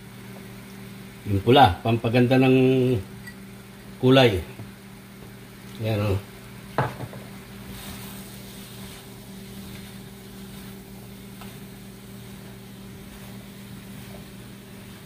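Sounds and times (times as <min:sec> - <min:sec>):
spatula scraping a pan: 0:07.6 - 0:15.0.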